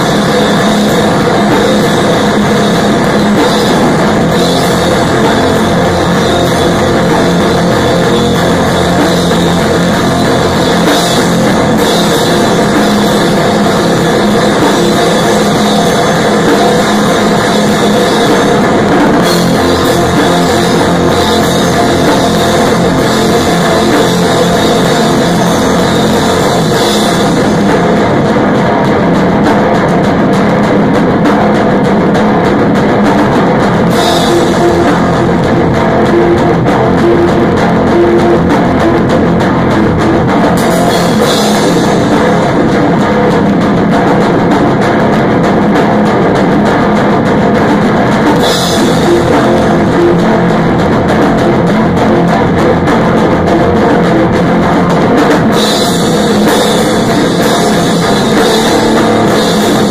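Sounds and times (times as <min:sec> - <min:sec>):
loud rock music: 0:00.0 - 0:59.9.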